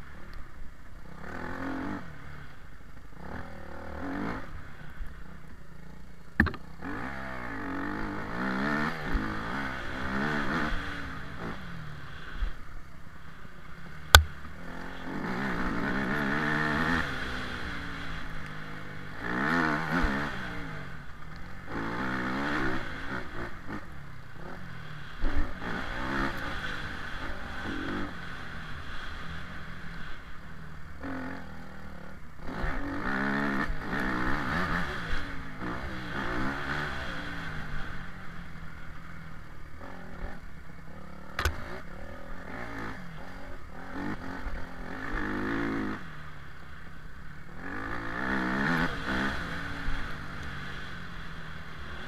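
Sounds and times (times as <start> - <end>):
dirt bike engine revving: 3.2 - 12.5, 14.1 - 30.4, 31.0 - 39.0, 39.6 - 52.0
sharp knock: 6.4 - 6.6.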